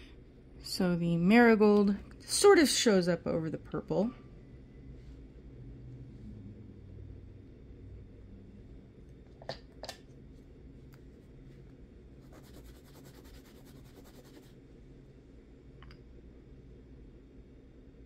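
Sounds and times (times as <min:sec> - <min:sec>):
fine rapid rasping: 0:12.2 - 0:14.5.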